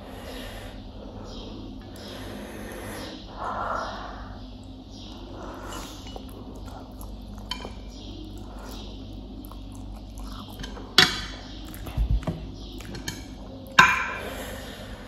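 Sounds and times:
chopsticks clinking on a plate: 7.4s - 7.9s.

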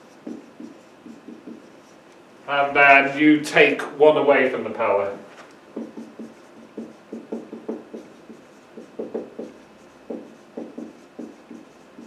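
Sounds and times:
marker pen writing on whiteboard: 0.0s - 2.3s, 5.7s - 12.0s.

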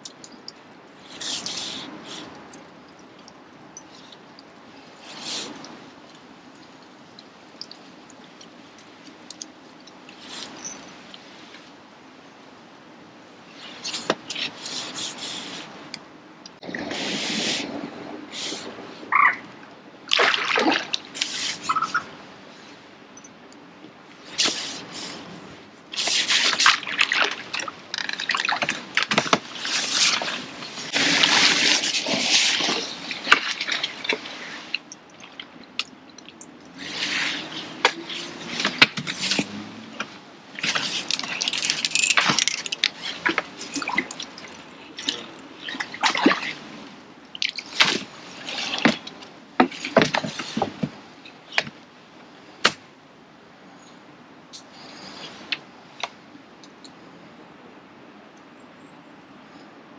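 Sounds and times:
fish splashing in water: 20.1s - 22.2s, 26.0s - 39.9s, 40.6s - 50.8s.

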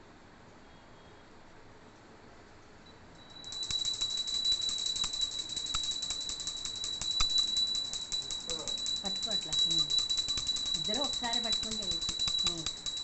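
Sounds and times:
hand bell ringing fast: 3.2s - 13.0s.

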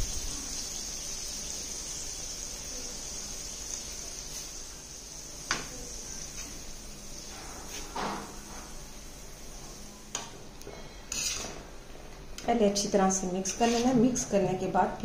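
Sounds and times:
faint high hiss: 0.0s - 10.3s.

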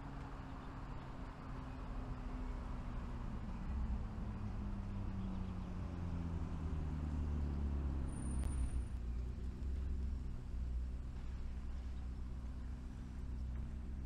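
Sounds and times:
steady low traffic rumble: 0.0s - 14.0s
car driving past: 1.7s - 12.8s.

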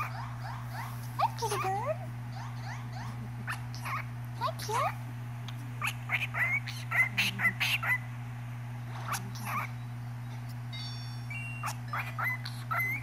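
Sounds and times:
cockatiel chirping and whistling: 10.8s - 13.0s.

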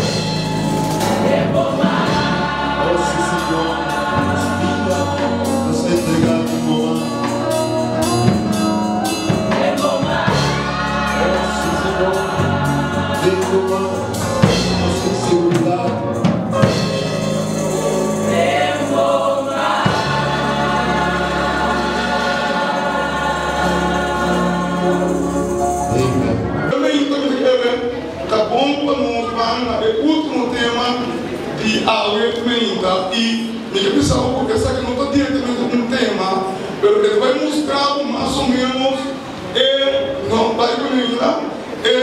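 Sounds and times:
instrumental accompaniment: 0.0s - 28.3s
choir singing a gospel hymn: 0.0s - 42.0s.

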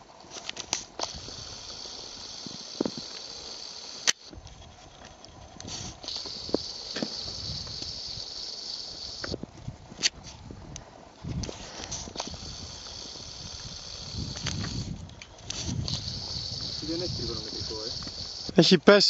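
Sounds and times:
steady high-pitched hiss: 0.0s - 19.0s
sharp click: 4.0s - 4.3s.

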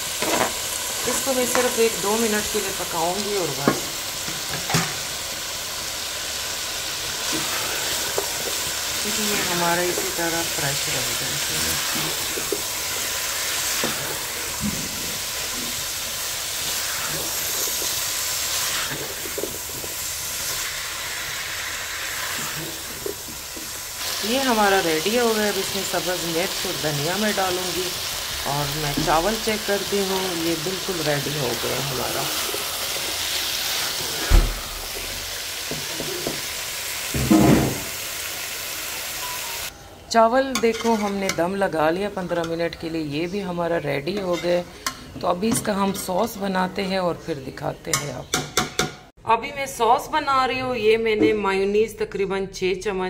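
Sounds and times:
food sizzling in a pan: 0.0s - 39.7s
spatula stirring in a pan: 6.8s - 24.5s, 28.9s - 37.2s
spatula scraping: 16.6s - 20.7s.

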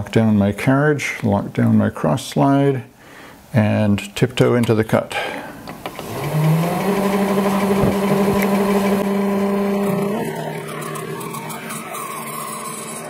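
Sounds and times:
clicks: 5.6s - 13.0s
lathe motor whining: 5.6s - 13.0s.

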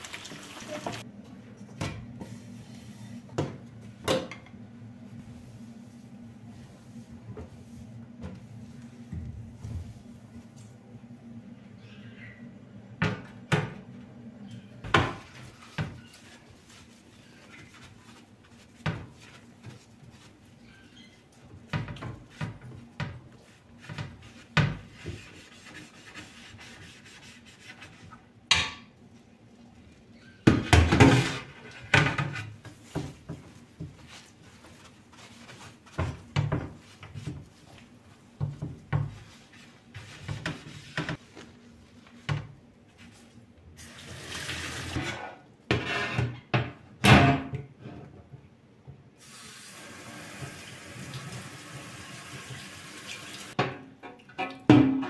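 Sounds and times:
tap water running into sink: 0.0s - 1.0s, 49.3s - 53.6s.

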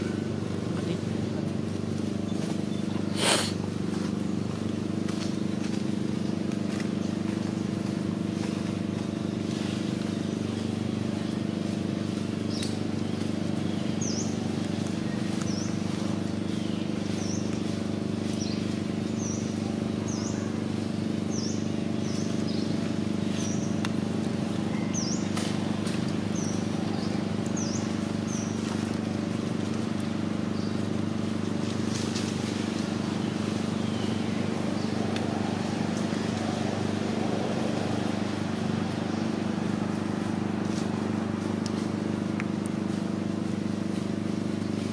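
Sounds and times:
steady low hum: 0.0s - 44.9s
small bird chirping: 26.2s - 29.2s.

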